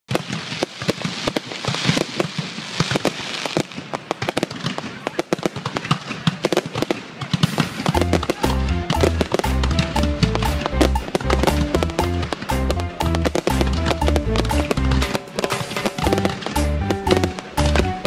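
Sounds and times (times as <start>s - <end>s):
fireworks bangs and pops: 0.1s - 18.0s
hissing crackle of sparks: 0.1s - 18.0s
music with low bass: 8.0s - 15.2s, 16.0s - 18.0s.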